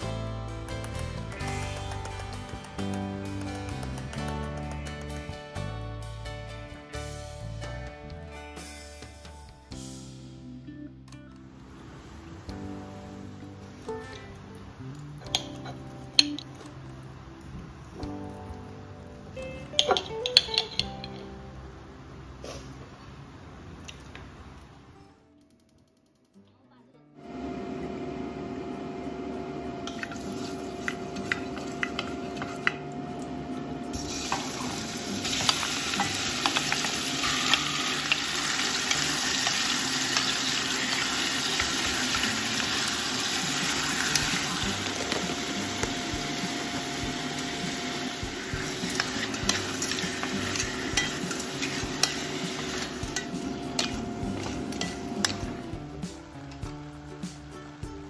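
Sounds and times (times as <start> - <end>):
meat sizzling in hot oil: 33.9 - 55.6.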